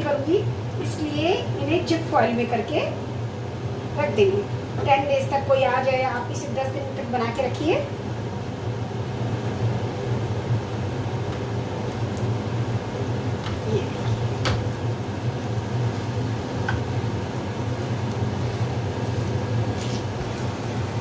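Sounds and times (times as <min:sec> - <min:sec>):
food sizzling in a pan: 0:00.0 - 0:21.0
spatula tapping a pan: 0:16.6 - 0:16.9.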